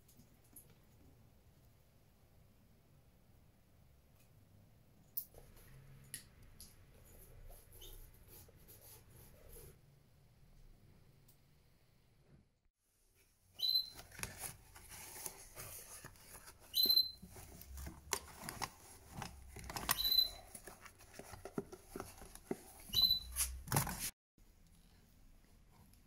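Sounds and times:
short high squeak: 22.9s - 23.6s.

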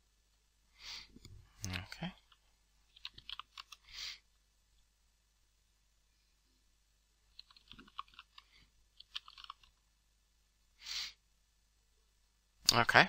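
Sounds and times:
keyboard typing: 2.3s - 3.9s, 7.3s - 9.8s.

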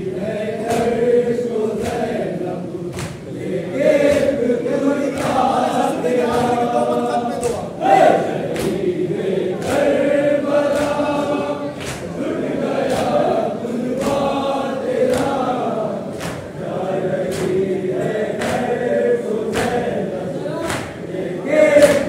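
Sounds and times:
men chanting in unison: 0.0s - 22.0s
hands slapping chest: 0.6s - 1.0s, 1.8s - 2.2s, 2.9s - 3.2s, 8.5s - 8.9s, 10.6s - 11.1s, 12.8s - 13.2s, 15.0s - 15.4s, 17.2s - 17.6s, 18.4s - 18.8s, 19.5s - 19.9s.

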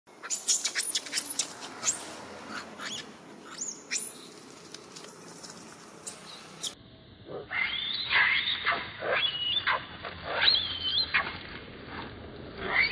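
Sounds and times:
monkeys squealing: 0.2s - 6.8s.

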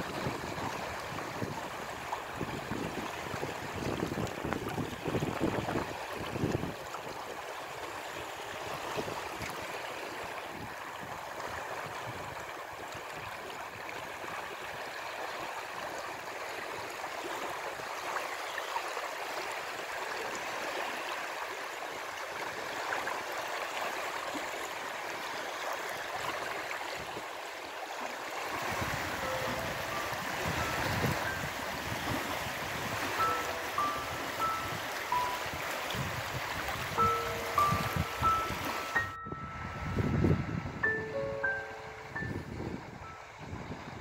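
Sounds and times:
small waves lapping on shore: 0.0s - 40.4s.

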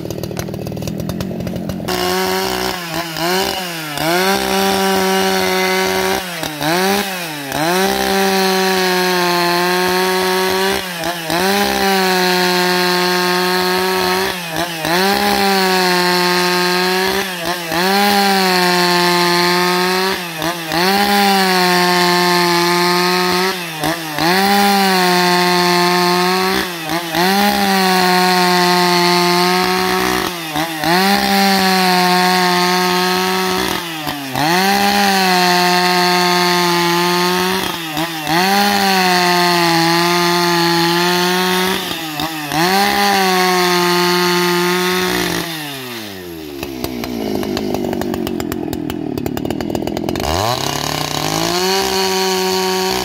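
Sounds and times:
chainsaw cutting log: 0.0s - 53.0s.

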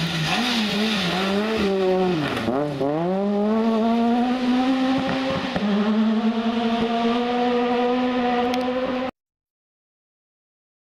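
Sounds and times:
gravel hiss from tyres: 0.0s - 3.8s
rally car engine revving: 0.0s - 9.1s.

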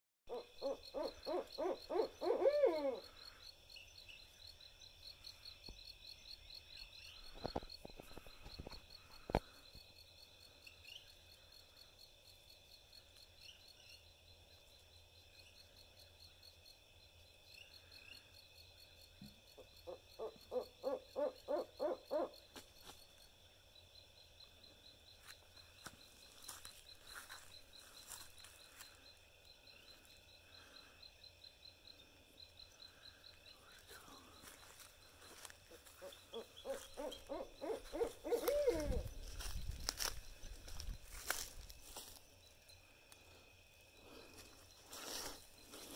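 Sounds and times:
owl hooting: 0.3s - 3.4s, 19.5s - 22.5s, 35.2s - 39.4s.

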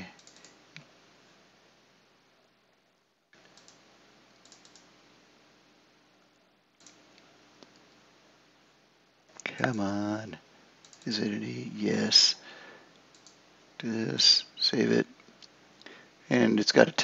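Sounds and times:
mouse and keyboard clicks: 4.4s - 4.9s.

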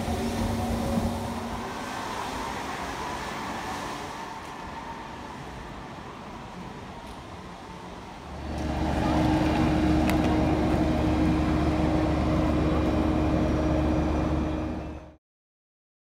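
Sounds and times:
machinery drone with deep rumble: 0.0s - 1.7s, 8.3s - 15.2s
indoor hall ambience: 0.0s - 15.0s.

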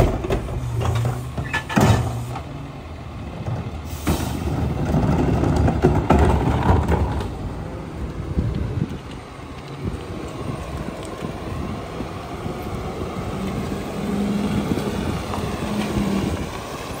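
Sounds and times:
garbage truck diesel engine: 0.0s - 17.0s
wind buffeting microphone: 4.5s - 17.0s.

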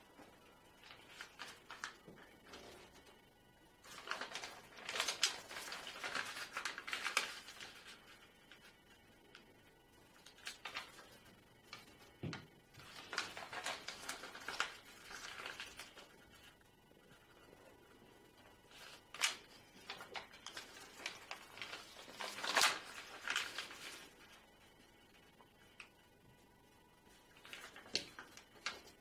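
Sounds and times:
paper rustling and crackling: 0.2s - 3.2s, 3.8s - 9.0s, 10.2s - 16.5s, 18.7s - 24.5s, 27.2s - 29.0s.

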